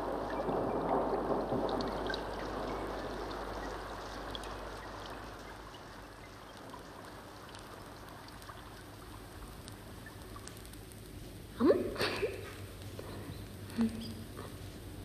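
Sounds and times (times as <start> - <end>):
rain-like rushing noise: 0.0 - 15.0
faint ticks: 2.1 - 11.5.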